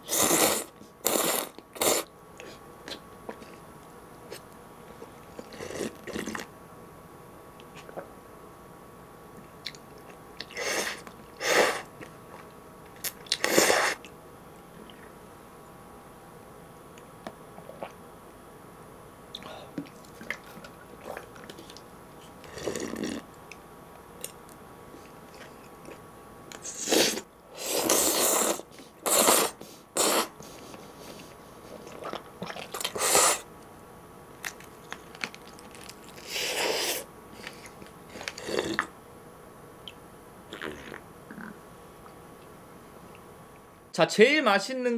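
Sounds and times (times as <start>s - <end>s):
person slurping noodles: 0.0s - 2.1s, 5.4s - 6.5s, 10.4s - 11.9s, 13.3s - 14.0s, 22.4s - 23.2s, 26.6s - 30.4s, 31.7s - 33.5s, 36.2s - 37.1s, 38.2s - 38.9s, 40.5s - 41.5s
chewing: 19.3s - 23.6s, 39.9s - 42.5s.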